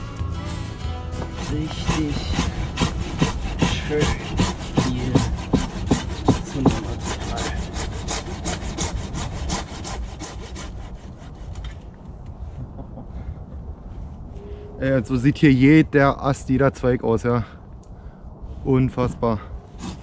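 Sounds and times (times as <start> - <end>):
hand saw cutting wood: 0.9 - 11.9, 19.8 - 20.0.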